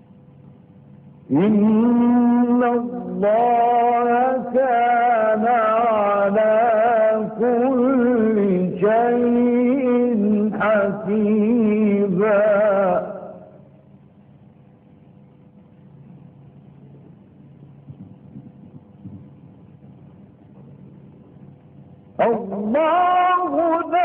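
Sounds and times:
man chanting melodic recitation: 22.2 - 24.0.

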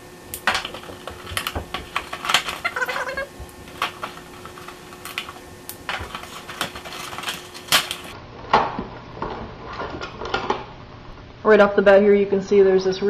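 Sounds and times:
faint electrical hum: 0.0 - 13.0
plastic packaging crinkling: 0.4 - 8.2.

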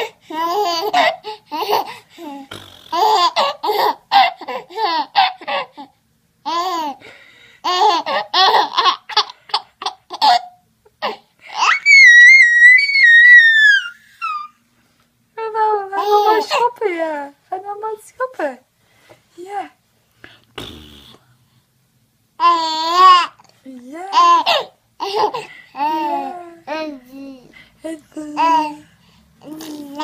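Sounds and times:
baby laughing: 0.0 - 7.0, 7.6 - 14.6, 22.4 - 23.5, 24.1 - 27.0
baby high-pitched squeal: 11.6 - 14.6.

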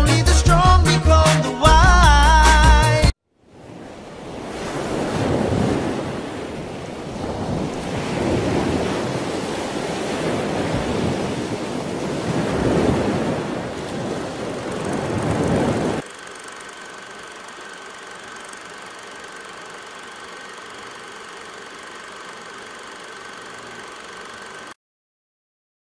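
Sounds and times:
waves washing in: 3.4 - 24.7
faint steady hum: 5.0 - 24.8.

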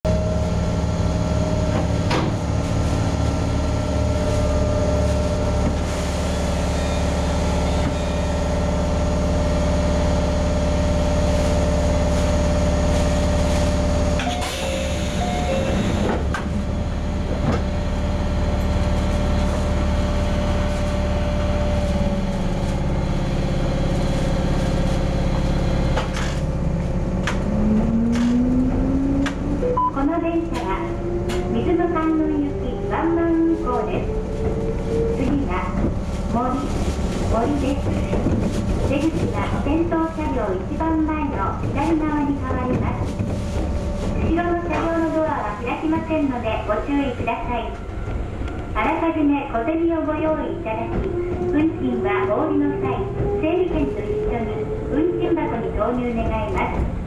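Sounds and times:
train equipment hum: 0.0 - 57.0
rising motor whine: 27.5 - 29.8.

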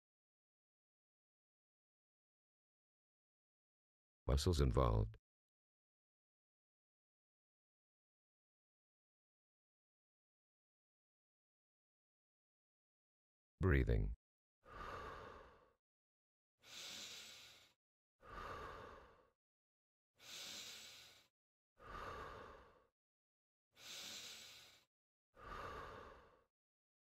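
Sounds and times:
person breathing slowly: 14.7 - 15.8, 16.6 - 19.3, 20.2 - 22.9, 23.8 - 26.5.

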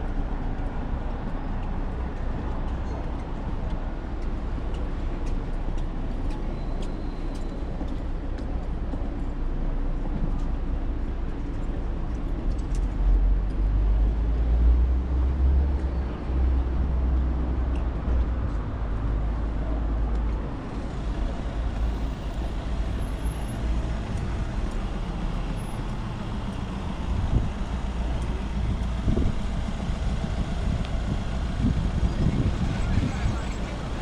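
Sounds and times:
passing motor vehicles: 7.3 - 34.0
deep rumble: 18.0 - 34.0.

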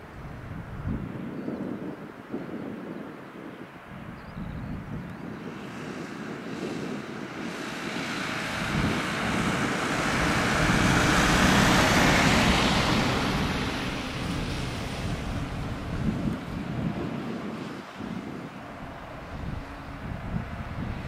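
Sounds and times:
jet engines roaring: 5.2 - 21.0.

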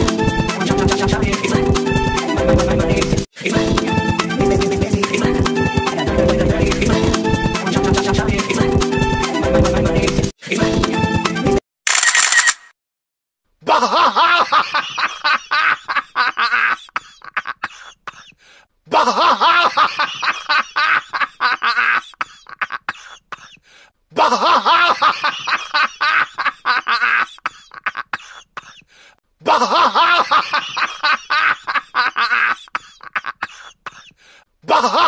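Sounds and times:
person coughing and laughing: 13.8 - 23.6, 24.2 - 35.0.

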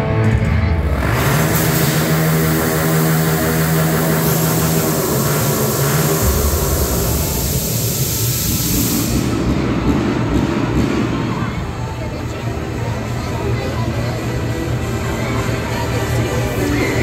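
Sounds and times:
low steady drone: 0.0 - 17.0
smoke jets hissing: 1.4 - 11.2.

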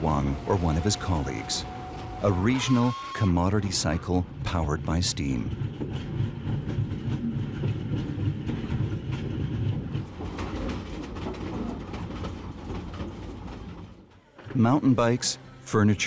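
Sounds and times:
carriages rattling: 0.0 - 16.0
train wheels clattering: 4.9 - 14.8.

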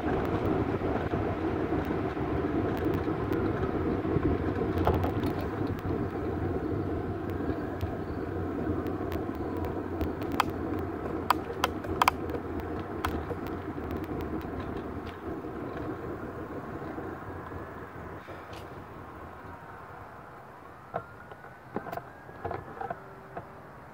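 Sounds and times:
bicycle clicks and rattles: 0.0 - 18.8
bicycle tyre and wind rumble: 0.0 - 23.9.

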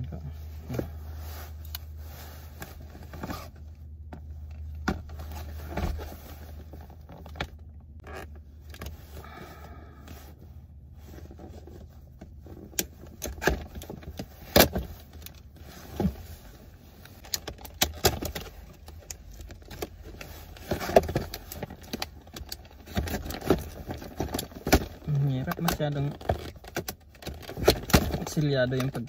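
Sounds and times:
low steady hum: 0.0 - 29.0
jacket rustling: 0.3 - 7.3.

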